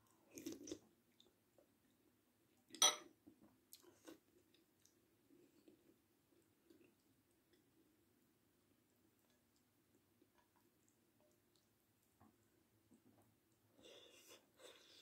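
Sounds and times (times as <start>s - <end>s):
soft chewing: 0.0s - 15.0s
metal spoon clinking on ceramic bowl: 2.8s - 3.0s.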